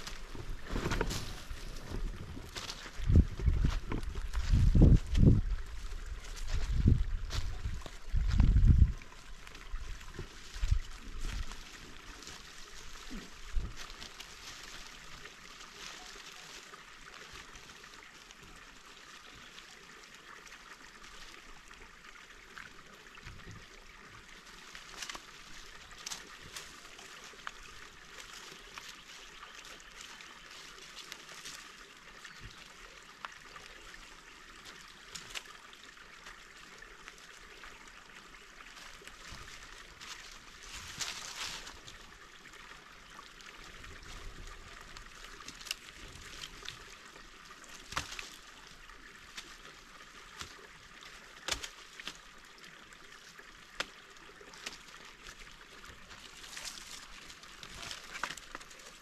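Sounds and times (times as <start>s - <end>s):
twigs cracking: 0.0s - 8.6s, 24.5s - 31.8s, 34.6s - 35.6s, 38.7s - 42.1s, 43.4s - 52.4s, 53.6s - 59.0s
dry leaves rustling and crunching: 0.0s - 18.6s, 24.4s - 32.5s, 38.5s - 52.4s, 53.8s - 59.0s.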